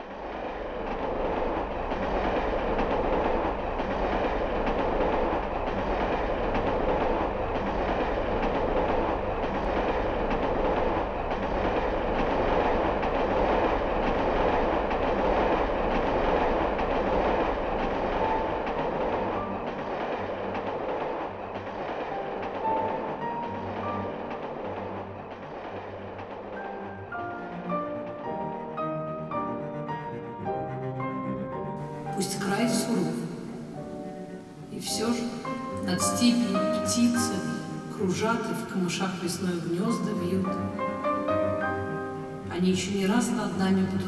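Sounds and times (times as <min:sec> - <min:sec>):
train wheels clattering on rails: 0:00.0 - 0:28.4.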